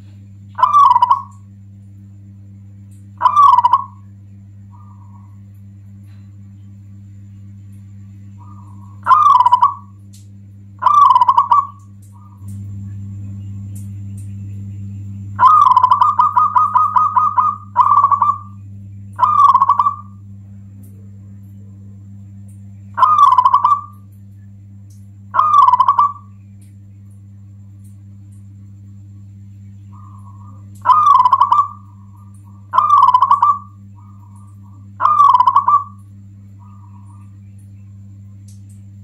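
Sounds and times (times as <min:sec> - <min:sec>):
steady low hum: 0:00.0 - 0:39.0
dove cooing: 0:00.6 - 0:01.5, 0:03.2 - 0:05.5, 0:08.3 - 0:10.0, 0:10.8 - 0:12.6, 0:15.3 - 0:20.3, 0:23.0 - 0:24.1, 0:25.3 - 0:26.4, 0:29.8 - 0:38.0.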